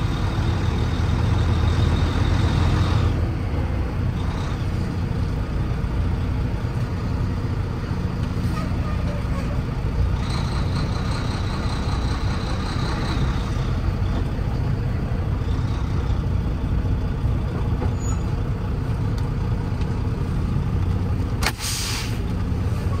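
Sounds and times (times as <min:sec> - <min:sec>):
diesel truck engine running: 0:00.0 - 0:23.0
air brake hiss: 0:21.4 - 0:22.3.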